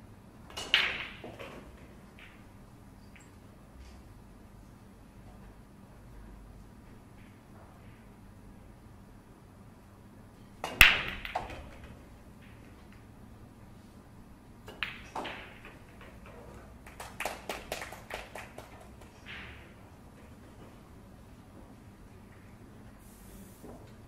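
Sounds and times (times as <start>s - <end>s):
cue ball cracking into racked balls: 0.5s - 2.5s, 10.6s - 13.2s, 14.6s - 19.9s
pool balls clacking: 0.5s - 2.5s, 10.6s - 13.1s, 14.6s - 20.7s.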